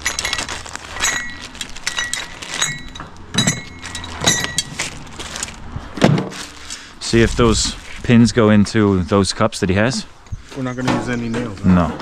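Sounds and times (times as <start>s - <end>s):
metal and plastic gear clinking: 0.0s - 5.0s.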